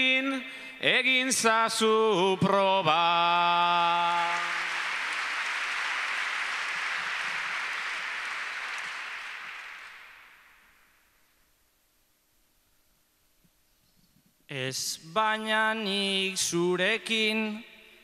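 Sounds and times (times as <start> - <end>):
audience applause: 4.1 - 10.6.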